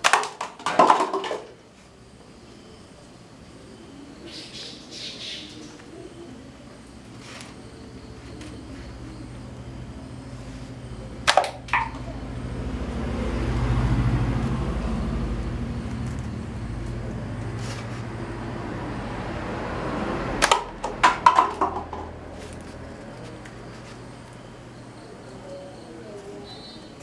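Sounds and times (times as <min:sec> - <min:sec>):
paper cups clattering: 0:00.0 - 0:01.6, 0:20.5 - 0:23.4
low steady hum: 0:00.0 - 0:27.0.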